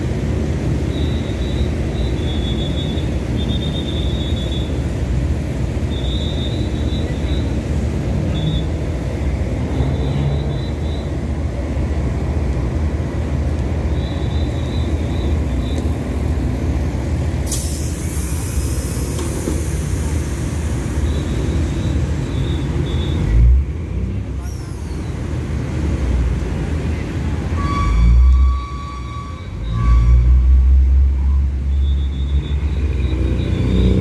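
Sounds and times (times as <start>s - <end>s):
diesel train engine idling: 0.0s - 33.2s
sudden hiss: 17.4s - 21.1s
short high-pitched tones: 27.6s - 30.6s.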